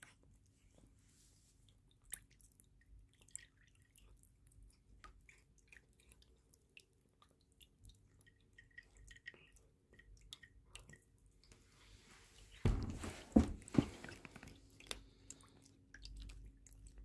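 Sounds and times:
cat chewing: 0:01.6 - 0:11.6, 0:14.5 - 0:17.0.

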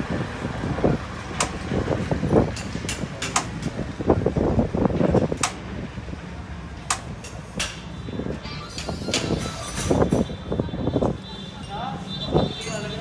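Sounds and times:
sharp clicks: 0:05.4 - 0:05.6, 0:06.9 - 0:07.4.

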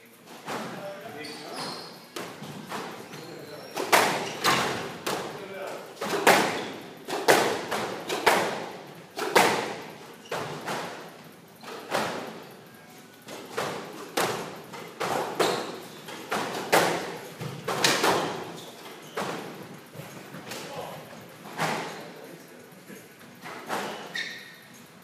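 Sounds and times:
squash ball hits echoing: 0:03.8 - 0:11.1, 0:13.3 - 0:18.5.

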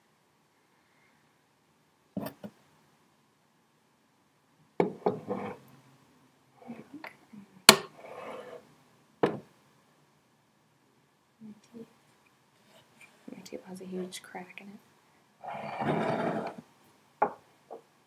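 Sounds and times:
crockery knocking on wooden table: 0:09.2 - 0:09.4.

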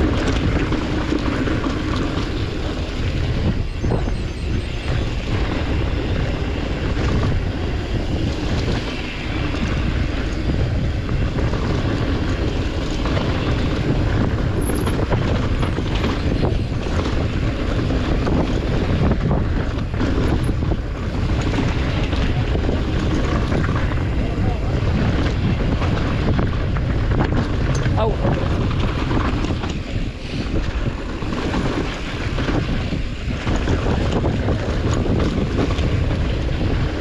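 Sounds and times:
wind noise on microphone: 0:00.0 - 0:37.0
bike knocks and rattles: 0:10.3 - 0:37.0.

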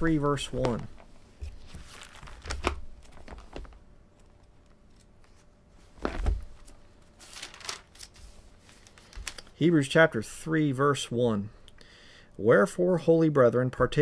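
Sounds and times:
book pages rustling and turning: 0:00.4 - 0:09.6.

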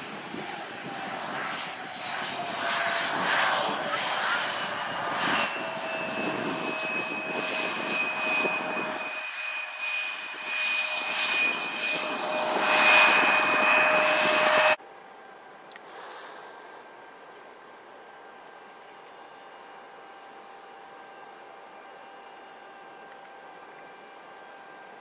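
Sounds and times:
jet engine whine and rumble: 0:00.0 - 0:14.8.

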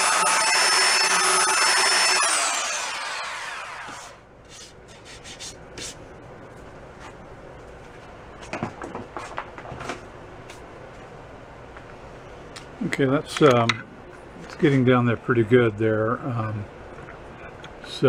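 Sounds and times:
belt sander whining: 0:00.0 - 0:04.2.

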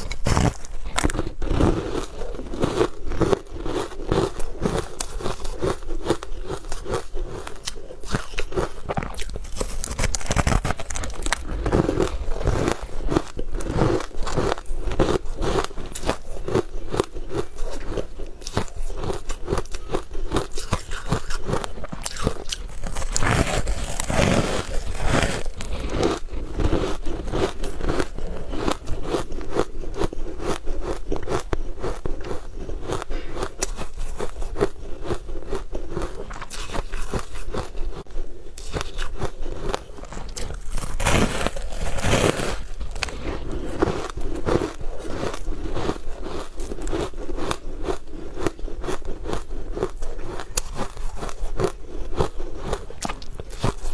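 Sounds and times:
crunchy chewing: 0:00.0 - 0:53.9
wet mouth clicks: 0:20.4 - 0:23.2.

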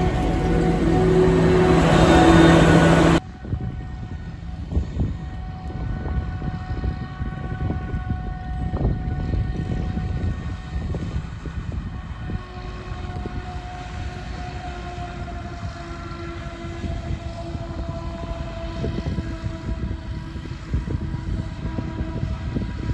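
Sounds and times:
distant harvester machine drone: 0:00.0 - 0:03.2
low rumble: 0:00.0 - 0:03.2.

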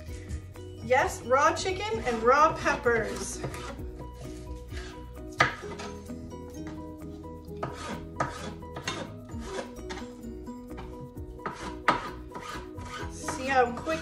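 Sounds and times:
background music: 0:00.0 - 0:14.0
knife scraping board: 0:03.0 - 0:06.0, 0:07.6 - 0:10.2, 0:10.8 - 0:14.0
knife slicing pepper on board: 0:07.6 - 0:10.1, 0:10.8 - 0:14.0.

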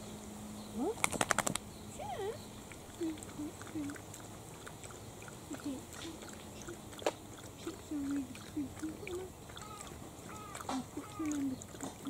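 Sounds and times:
puppy short low calls: 0:05.6 - 0:12.0.

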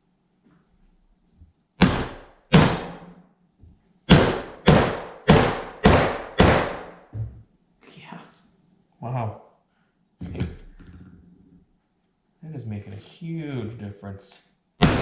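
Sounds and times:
hammer striking metal tool: 0:01.8 - 0:03.2, 0:04.1 - 0:07.0, 0:14.8 - 0:15.0.

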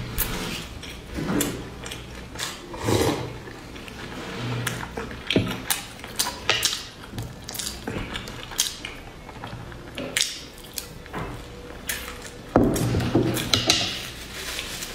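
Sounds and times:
chewing with wet mouth clicks: 0:00.8 - 0:02.7, 0:03.4 - 0:12.5.

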